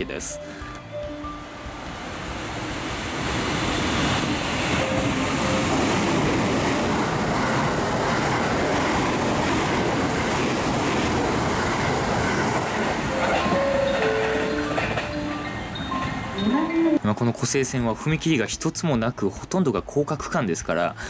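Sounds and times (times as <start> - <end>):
electric train passing at speed: 0.0 - 19.9.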